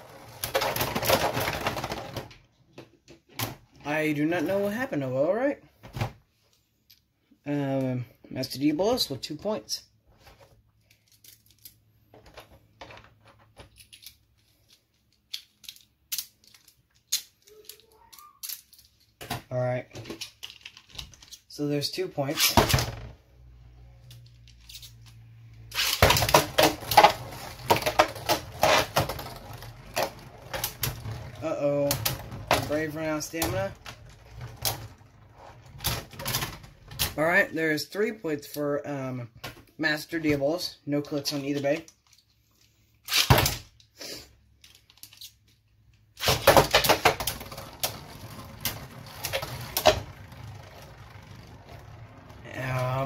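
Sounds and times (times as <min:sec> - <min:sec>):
spinning tops clattering and whirring: 0:24.1 - 0:37.2, 0:46.2 - 0:53.0
spinning tops clattering: 0:46.2 - 0:53.0.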